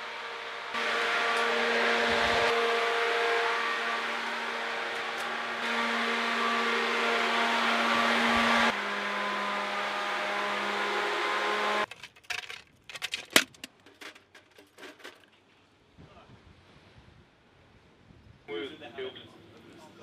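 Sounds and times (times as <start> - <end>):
ship's machinery humming: 0.0 - 11.9.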